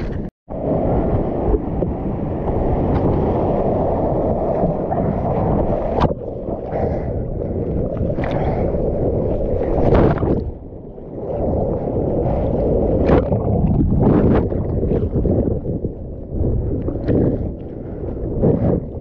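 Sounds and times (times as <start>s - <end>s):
muffled rush of water: 0.0s - 19.0s.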